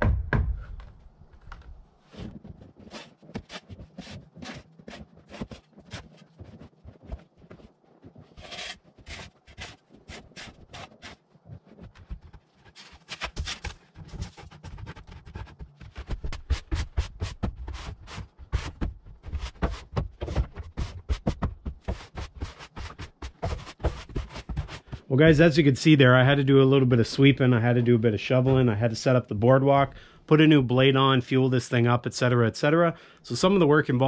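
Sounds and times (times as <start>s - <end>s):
broom sweeping snow: 8.4s - 11.2s.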